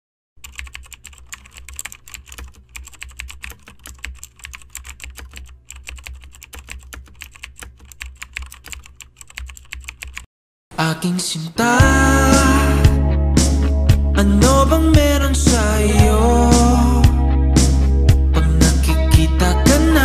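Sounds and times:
keyboard typing clicks: 0:00.4 - 0:10.3.

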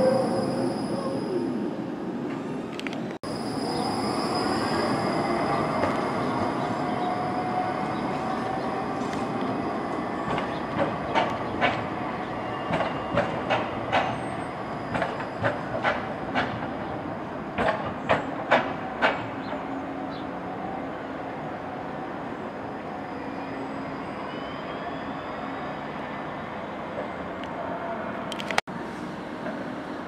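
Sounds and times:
tram wheels clacking: 0:05.4 - 0:19.7.

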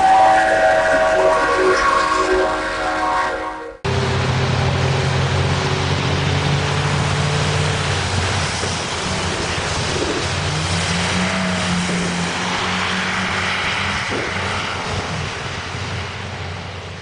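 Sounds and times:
train horn: 0:00.0 - 0:04.1
car passing by: 0:04.0 - 0:16.2
rain and tyre spray: 0:06.1 - 0:16.3.

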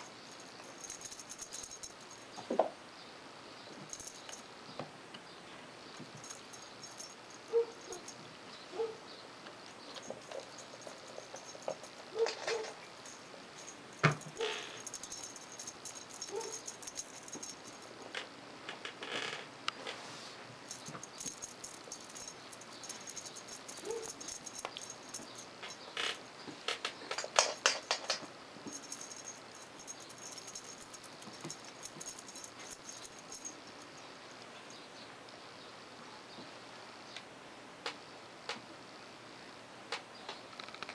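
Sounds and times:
toy clatter: 0:00.0 - 0:02.2, 0:06.1 - 0:08.2, 0:09.9 - 0:17.9, 0:20.7 - 0:25.8, 0:27.1 - 0:33.9
kitten paws pattering on wood: 0:09.9 - 0:17.9, 0:26.5 - 0:33.9.

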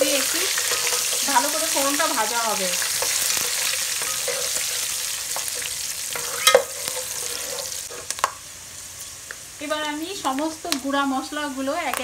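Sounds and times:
spices sizzling in hot oil: 0:00.0 - 0:12.0
spatula scraping a pot: 0:00.6 - 0:01.4, 0:02.9 - 0:08.2.

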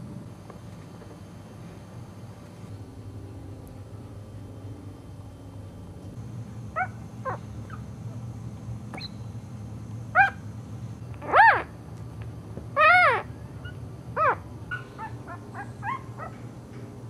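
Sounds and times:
low steady hum: 0:00.0 - 0:17.0
puppies squeaking and whimpering: 0:11.2 - 0:11.7, 0:12.8 - 0:16.4.

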